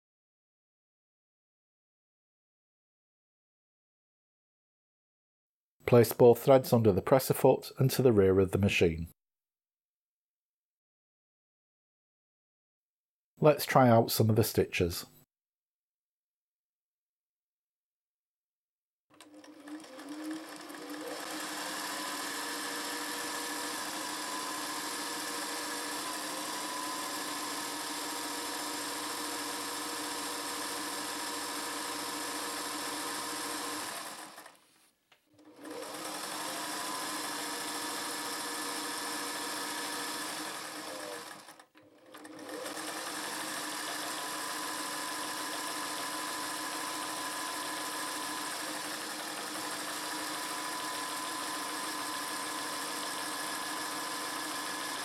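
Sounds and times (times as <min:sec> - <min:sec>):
sewing machine running: 0:19.1 - 0:34.6, 0:35.4 - 0:55.0.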